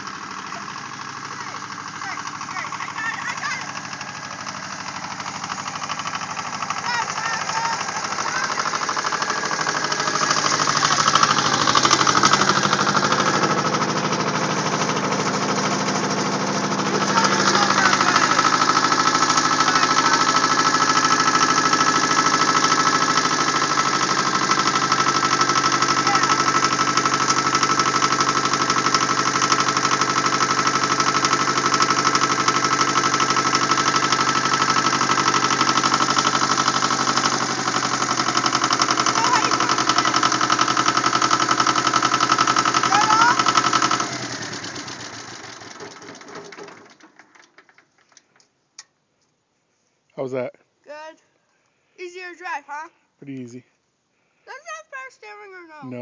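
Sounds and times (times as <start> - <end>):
diesel tractor engine chugging: 0.0 - 48.4.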